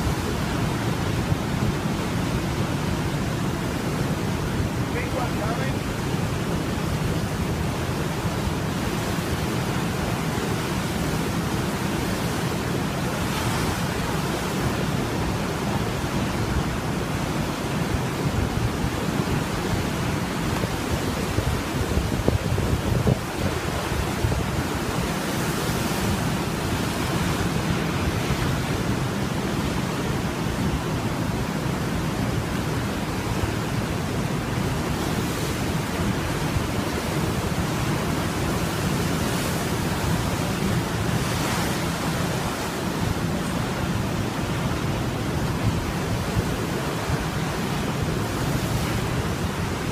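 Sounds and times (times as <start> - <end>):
ocean waves breaking: 0.0 - 49.9
wind rumbling on microphone: 0.0 - 49.9.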